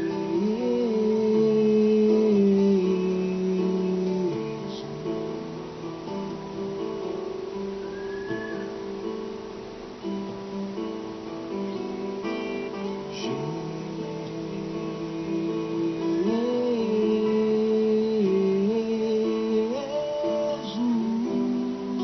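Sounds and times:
man singing: 0:00.0 - 0:05.9, 0:12.7 - 0:22.0
acoustic guitar: 0:00.0 - 0:22.0.

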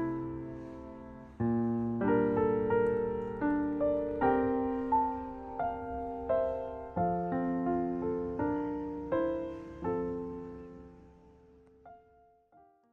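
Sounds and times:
slow piano music: 0:00.0 - 0:12.9.

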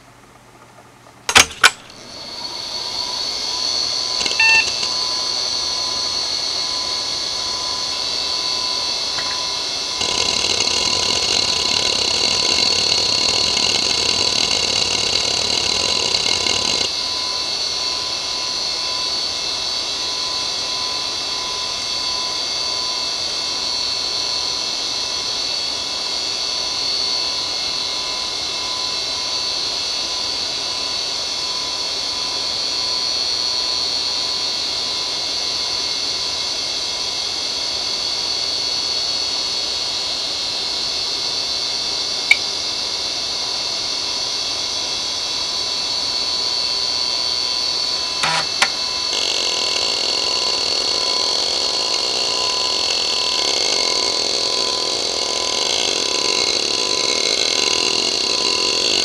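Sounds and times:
hard drive high whine: 0:00.0 - 0:59.0
hard drive clicks: 0:04.2 - 0:05.0, 0:09.2 - 0:16.9, 0:48.2 - 0:50.4.

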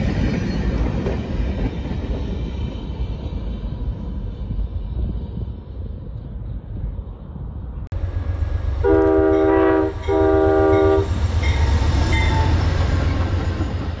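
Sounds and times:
passing train rumble: 0:00.0 - 0:14.0
locomotive horn blasts: 0:08.8 - 0:11.1.

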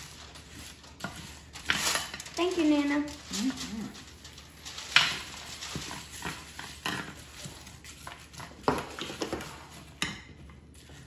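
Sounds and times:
dry seeds rustling: 0:00.0 - 0:07.4.

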